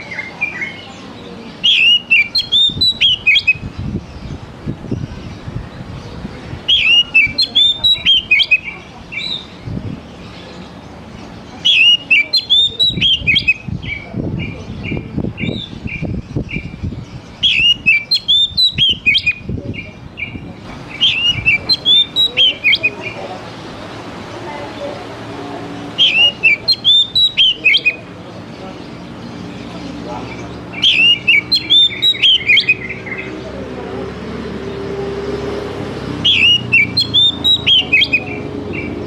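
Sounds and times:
bird singing whistled notes: 0:00.0 - 0:05.8, 0:06.7 - 0:09.6, 0:11.6 - 0:23.2, 0:25.9 - 0:28.1, 0:30.4 - 0:33.4, 0:36.2 - 0:39.0.

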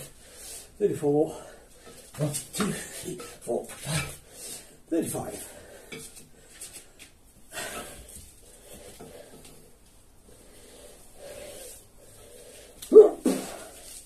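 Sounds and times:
heavy breathing: 0:00.0 - 0:14.0
sharp exhales: 0:10.6 - 0:14.0.

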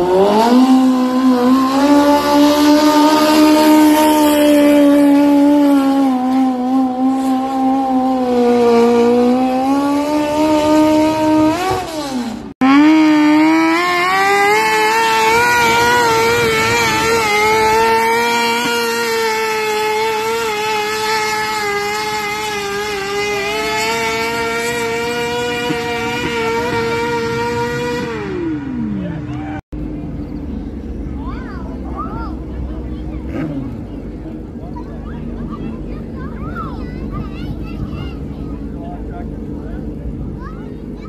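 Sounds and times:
tractor engines revving under load: 0:00.0 - 0:41.0.

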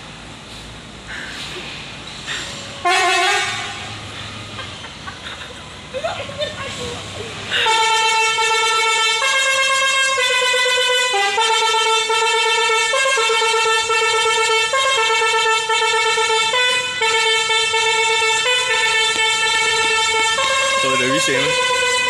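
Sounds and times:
musical truck horn melody: 0:02.8 - 0:04.7, 0:07.5 - 0:22.0.

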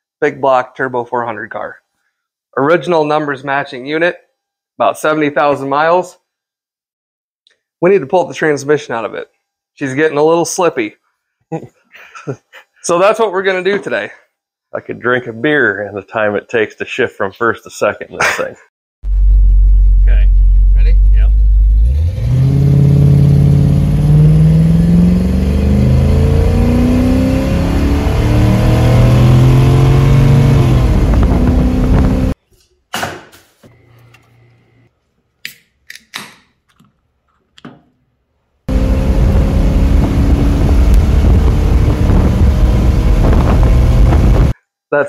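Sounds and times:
car engine accelerating: 0:20.4 - 0:32.4, 0:38.7 - 0:44.5.

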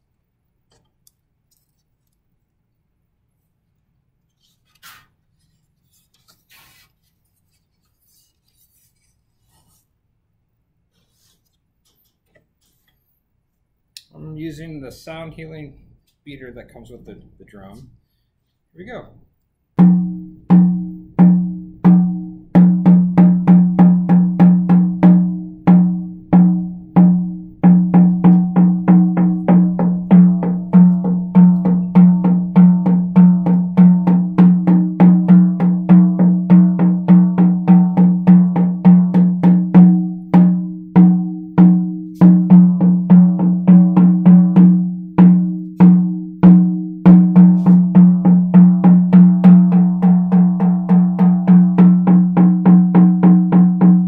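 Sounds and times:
frame drum struck with beater: 0:19.8 - 0:54.0.

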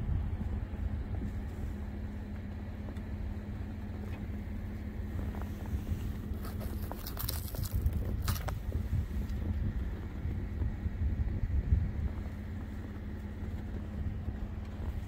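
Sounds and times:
truck engine idling: 0:00.0 - 0:15.0
fabric rustling and scraping: 0:05.2 - 0:08.7.

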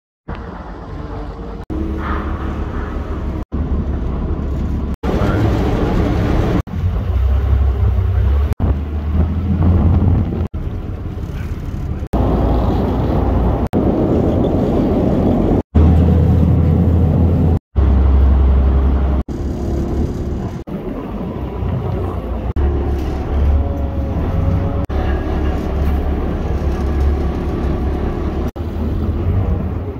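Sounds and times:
boat engine rumble: 0:00.2 - 0:29.9
water noise: 0:00.2 - 0:29.9
wind on microphone: 0:05.1 - 0:11.5.

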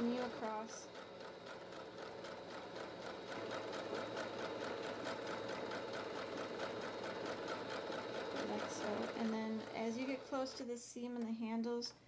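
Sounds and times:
sewing machine running: 0:00.0 - 0:10.7.

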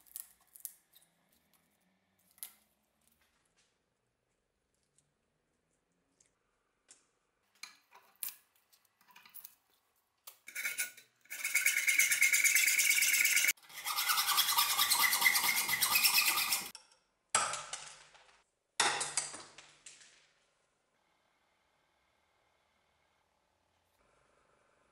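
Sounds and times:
hacksaw cutting steel: 0:10.5 - 0:16.7.

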